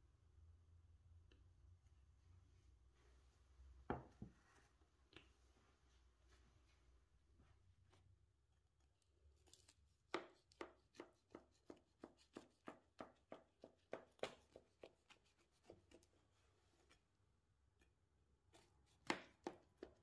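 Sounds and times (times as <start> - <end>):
knife crunching through crumble cake: 9.4 - 12.6.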